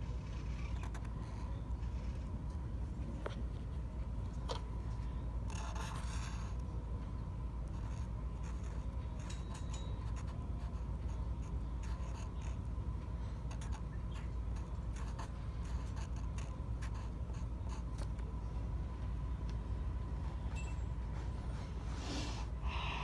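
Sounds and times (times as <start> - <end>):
marker scratching on paper: 0.0 - 3.9, 4.5 - 6.6, 7.6 - 18.3
steady low hum: 0.0 - 23.0.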